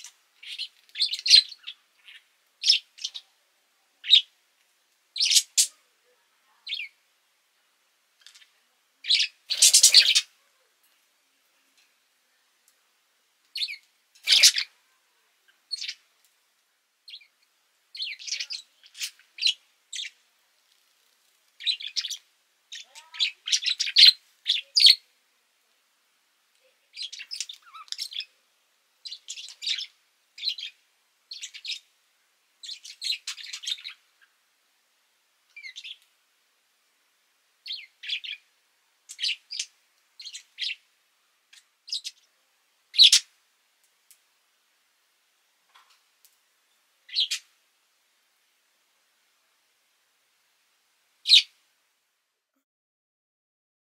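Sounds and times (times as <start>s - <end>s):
budgerigar chirping: 4.0s - 4.3s, 5.2s - 5.7s, 9.0s - 10.3s, 13.6s - 14.7s, 15.7s - 16.0s, 37.7s - 38.4s, 39.1s - 40.8s, 43.0s - 43.2s, 47.1s - 47.4s, 51.3s - 51.5s.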